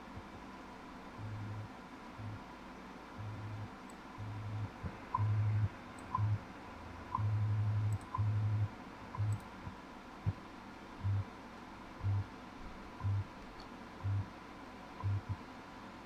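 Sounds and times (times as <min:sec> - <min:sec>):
low hum pulses: 0:01.1 - 0:02.5, 0:03.1 - 0:10.4, 0:11.0 - 0:11.3, 0:12.0 - 0:12.3, 0:13.0 - 0:13.3, 0:14.0 - 0:14.4, 0:15.0 - 0:15.4
radio time signal ticks: 0:03.2 - 0:06.4, 0:07.1 - 0:09.8, 0:13.0 - 0:13.3.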